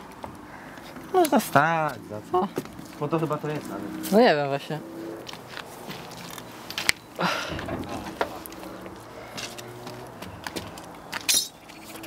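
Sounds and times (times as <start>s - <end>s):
footsteps on gravel: 5.2s - 11.3s.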